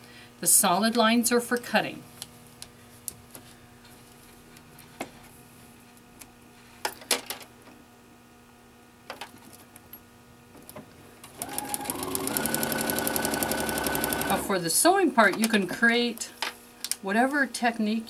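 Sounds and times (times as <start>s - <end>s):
sewing machine stitching: 11.3s - 14.5s.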